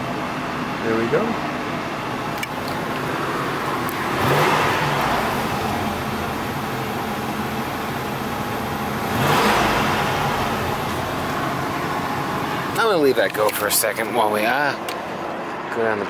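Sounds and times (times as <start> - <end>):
car engine revving: 2.0 - 15.3.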